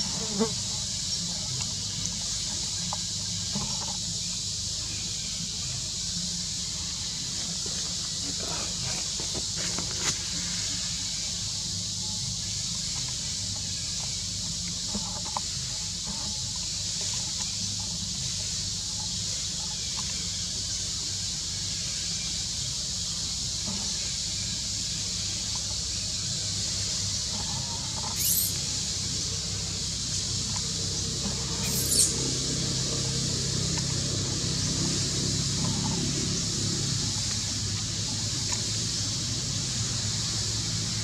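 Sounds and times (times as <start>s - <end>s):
high-pitched outdoor hiss: 0.0s - 41.0s.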